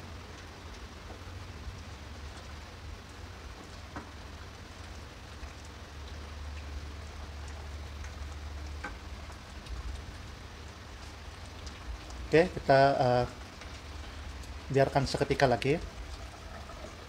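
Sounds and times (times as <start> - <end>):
curry bubbling: 0.4 - 17.0.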